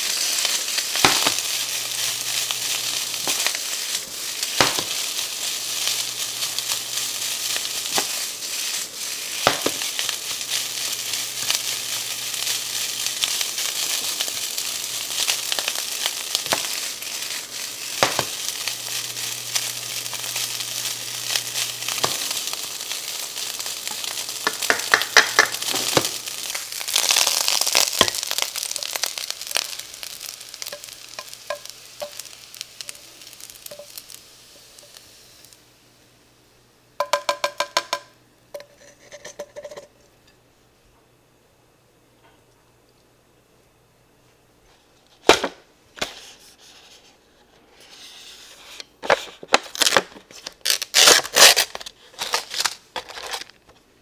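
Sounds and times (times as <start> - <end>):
fried rice sizzling in a pan: 0.0 - 37.9
spatula scraping a pan: 38.6 - 39.9, 47.7 - 48.9.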